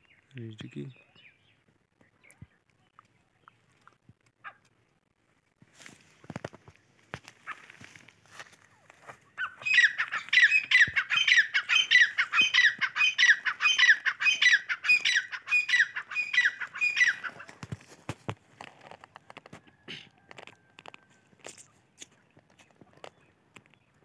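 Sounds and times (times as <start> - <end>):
francolin calling sharp repeated notes: 9.4 - 17.4.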